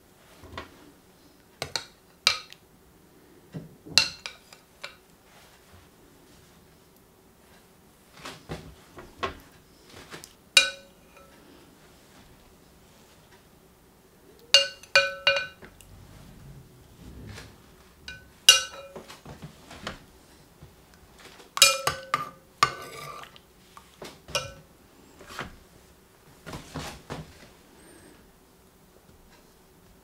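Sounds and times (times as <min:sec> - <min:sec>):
metal spoon clinking against pot: 0:10.6 - 0:11.3, 0:14.6 - 0:15.6, 0:18.1 - 0:19.0, 0:21.6 - 0:23.2, 0:24.4 - 0:24.6.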